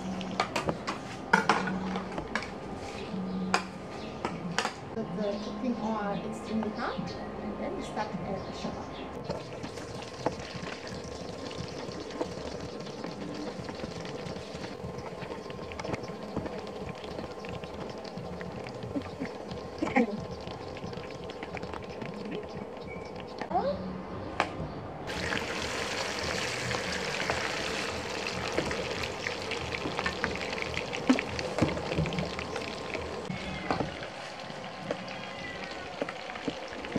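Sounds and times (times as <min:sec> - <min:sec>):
food sizzling in hot oil: 0:09.2 - 0:23.4, 0:25.1 - 0:36.9
oil crackling and popping: 0:09.2 - 0:23.5, 0:25.1 - 0:36.9
soup bubbling in a pot: 0:09.2 - 0:23.5, 0:25.1 - 0:36.9.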